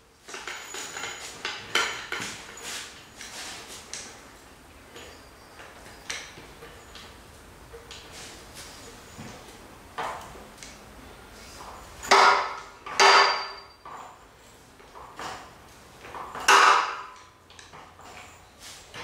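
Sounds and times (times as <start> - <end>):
metal clunks and creaks: 11.6 - 19.0
loud ringing metal clanks: 12.0 - 14.2.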